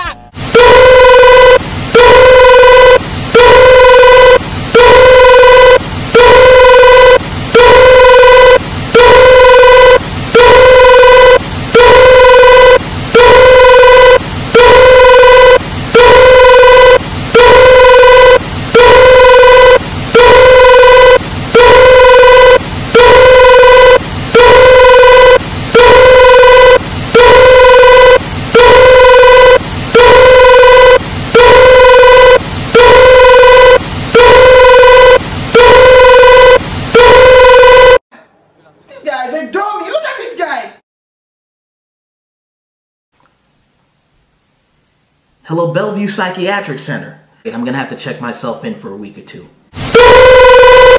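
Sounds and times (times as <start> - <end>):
buzzy phone-style beeps: 0.0 - 38.0.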